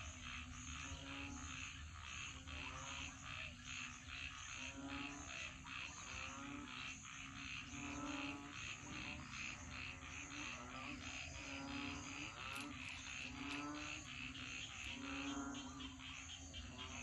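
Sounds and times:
frogs calling: 0.0 - 17.0
frogs croaking: 0.0 - 17.0.

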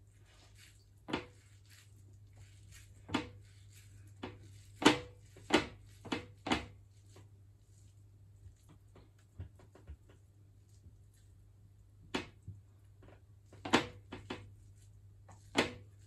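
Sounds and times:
hands patting sticky rice: 0.0 - 12.4.

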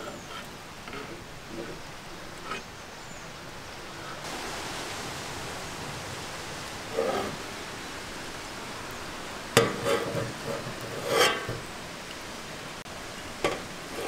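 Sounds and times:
steady hiss: 0.0 - 14.0
metal spatula scraping metal tray: 9.6 - 11.6.

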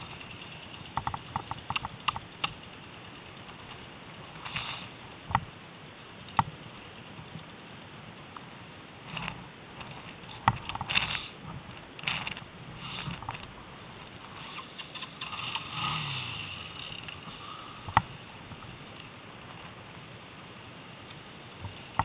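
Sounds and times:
atv rattling over snow: 0.0 - 5.1, 9.0 - 19.8.

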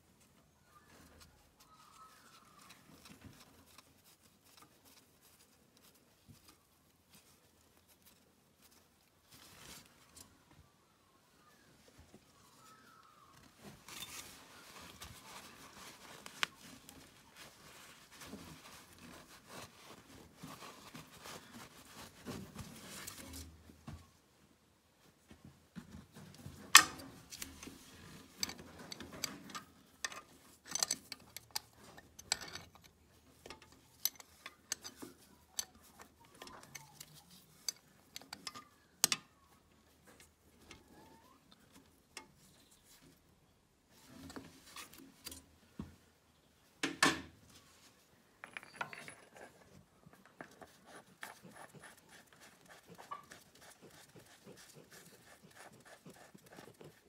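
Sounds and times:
metal spanner clinking on bolts: 48.4 - 49.6.

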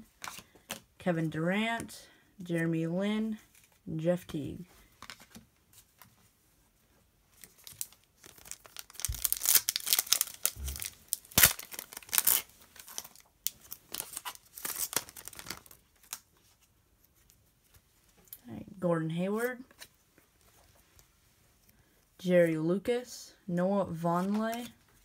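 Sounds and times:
foil wrapper tearing and crinkling: 7.4 - 16.3.

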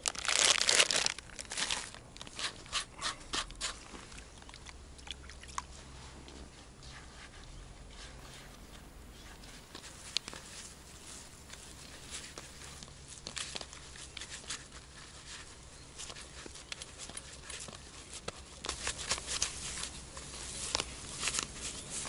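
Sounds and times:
plastic packaging crinkling: 0.0 - 2.0.

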